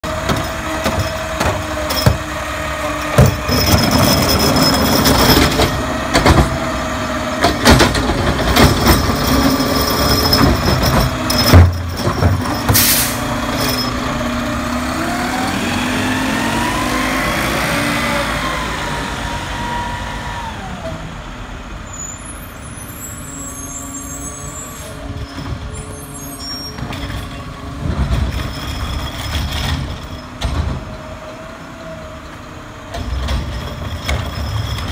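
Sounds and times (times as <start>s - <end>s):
garbage truck diesel engine: 0.0s - 34.9s
carts and trash knocking: 3.1s - 4.1s, 7.4s - 12.8s
air brake hiss: 12.7s - 13.3s.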